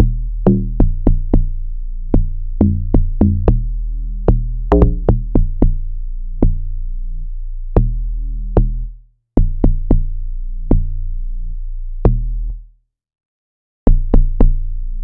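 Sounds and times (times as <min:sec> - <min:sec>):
deep bass notes: 0:00.0 - 0:12.6, 0:13.9 - 0:15.0.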